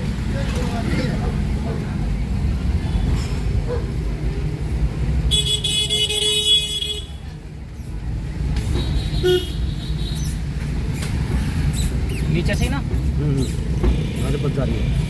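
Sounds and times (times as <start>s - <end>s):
car engine and road noise: 0.0s - 15.0s
vehicle horn blast: 5.3s - 7.1s.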